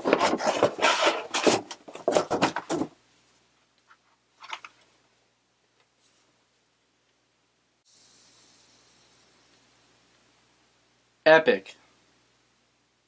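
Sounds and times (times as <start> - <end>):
cardboard rustling and scraping: 0.0 - 3.0.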